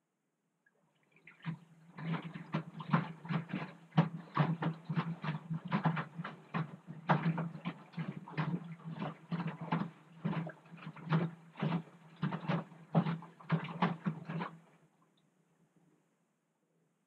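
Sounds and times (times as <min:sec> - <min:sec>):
washing machine motor hum: 0:01.2 - 0:14.7
laundry sloshing and thudding in drum: 0:01.2 - 0:14.8.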